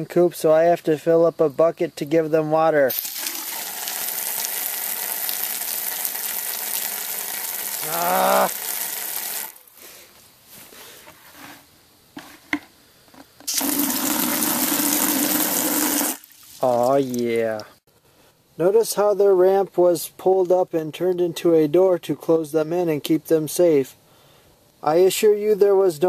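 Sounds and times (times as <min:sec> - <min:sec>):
hose spraying into plastic bucket: 0:02.9 - 0:09.6, 0:13.4 - 0:17.2.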